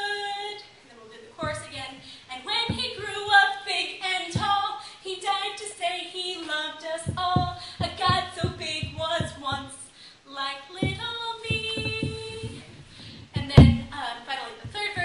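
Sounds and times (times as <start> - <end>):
girl singing: 0.0 - 15.0
low thumps: 1.4 - 1.9, 2.6 - 3.3, 7.0 - 9.7, 10.8 - 15.0.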